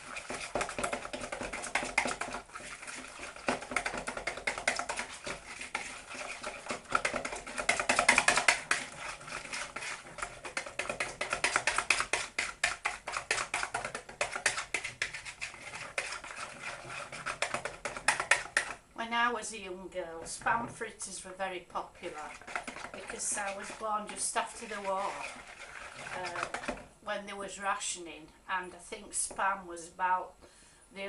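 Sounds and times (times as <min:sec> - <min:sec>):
whisk clicking against glass bowl: 0:00.0 - 0:18.8.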